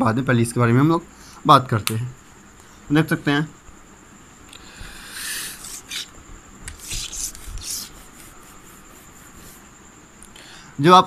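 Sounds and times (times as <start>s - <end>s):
cloth rubbing on whiteboard: 5.3s - 9.7s.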